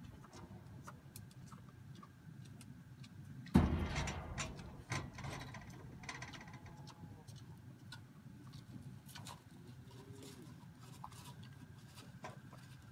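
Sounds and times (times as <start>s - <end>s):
faint clicks of feed eaten: 0.0s - 3.6s, 6.2s - 12.9s
knocks against metal feeder: 3.6s - 6.7s.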